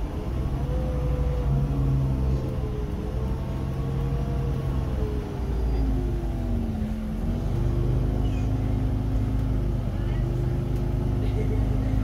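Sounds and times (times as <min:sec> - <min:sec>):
bus diesel engine running: 0:00.0 - 0:12.0.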